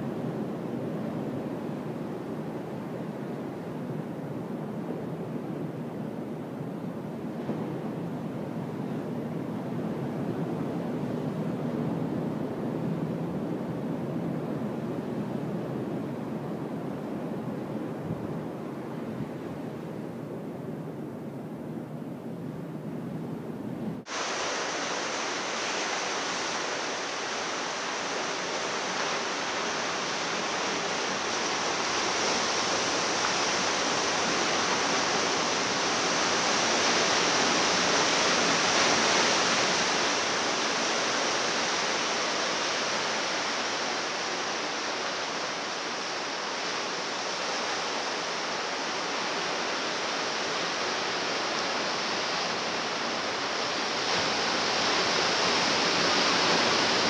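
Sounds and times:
ocean surf on rocky shore: 0:24.0 - 0:57.0.

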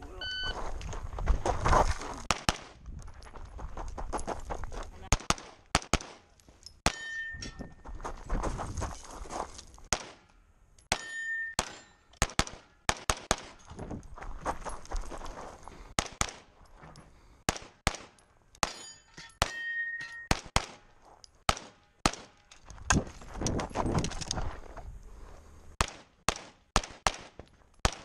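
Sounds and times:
brief ringing tone: 0:00.2 - 0:00.6
rapid pistol shots: 0:02.3 - 0:02.7, 0:05.1 - 0:06.2, 0:11.6 - 0:13.6, 0:17.5 - 0:18.1, 0:21.5 - 0:22.4, 0:25.8 - 0:28.0.

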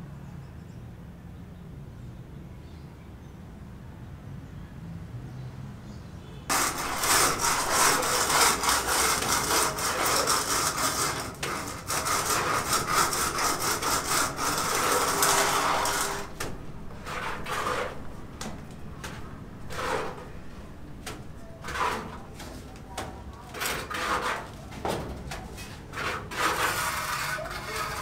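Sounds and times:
hand saw cutting wood: 0:06.5 - 0:20.4, 0:21.1 - 0:25.0, 0:25.6 - 0:28.0.

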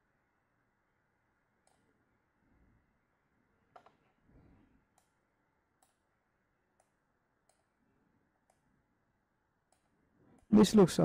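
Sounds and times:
computer mouse clicks: 0:01.6 - 0:01.9, 0:03.7 - 0:04.1, 0:04.9 - 0:05.2, 0:05.8 - 0:06.1, 0:06.7 - 0:07.8, 0:08.4 - 0:08.7, 0:09.7 - 0:10.5.

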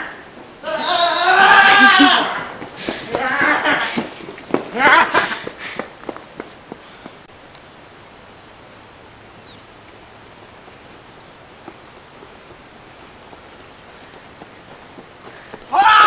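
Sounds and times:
crickets trilling: 0:00.0 - 0:16.0
faint clicks: 0:07.5 - 0:07.7.

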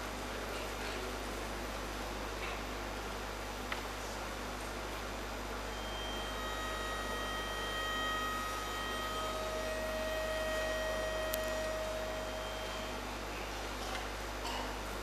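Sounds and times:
low mains hum: 0:00.0 - 0:15.0
faint high steady tones: 0:05.1 - 0:14.5.

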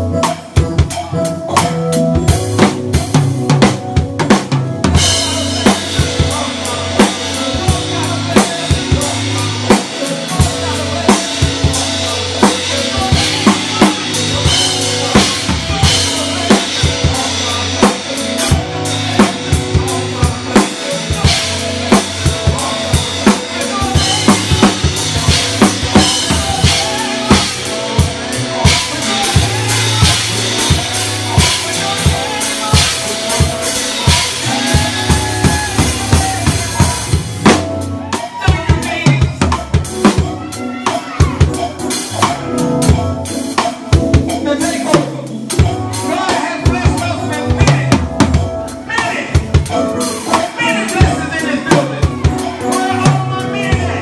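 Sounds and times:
drum kit playing: 0:00.0 - 0:54.0.

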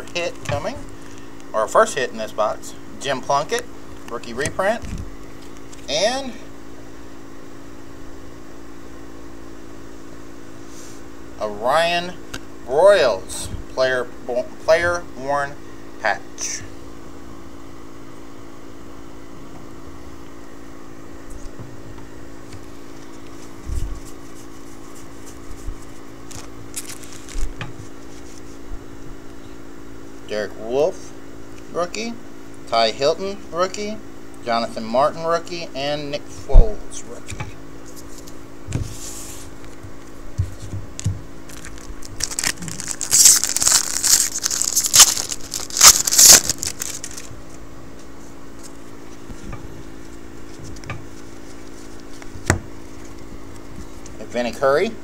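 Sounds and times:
steady low hum: 0:00.0 - 0:55.0
paper cards flicking and rustling: 0:22.5 - 0:28.6, 0:37.8 - 0:54.2
wrapper tearing and crinkling: 0:25.8 - 0:27.6, 0:41.4 - 0:47.6.

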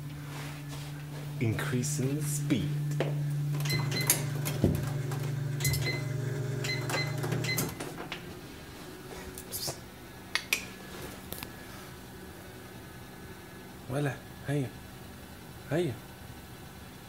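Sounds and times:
treadmill motor hum: 0:00.0 - 0:10.2.

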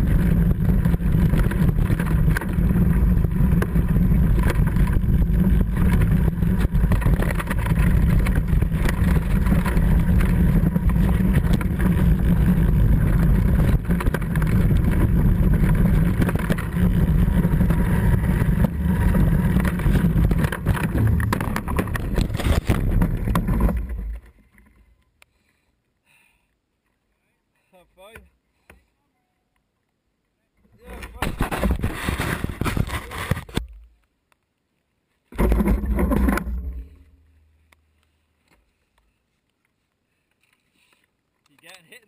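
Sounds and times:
mountain bike rattling on rough trail: 0:00.0 - 0:24.7, 0:30.8 - 0:33.6, 0:35.4 - 0:37.0
bike crash: 0:31.1 - 0:33.6.

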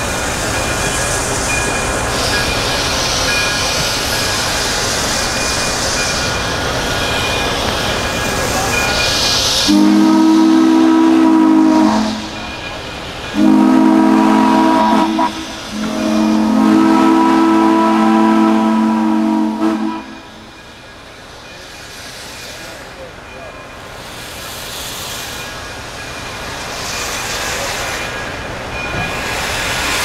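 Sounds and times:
escaping steam hissing: 0:00.0 - 0:30.0
steam whistle blasts: 0:09.6 - 0:12.4, 0:13.3 - 0:20.4.

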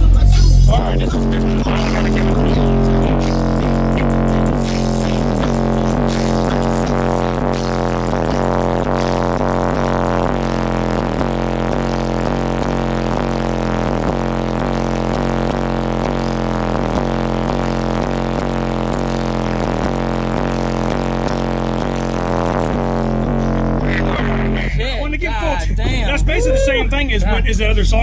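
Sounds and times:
bass-heavy music from subwoofers: 0:00.0 - 0:28.0.

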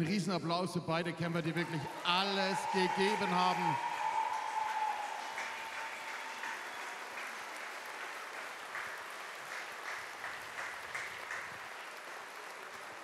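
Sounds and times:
audience applauding: 0:01.4 - 0:13.0
loud single claps: 0:03.0 - 0:13.0.

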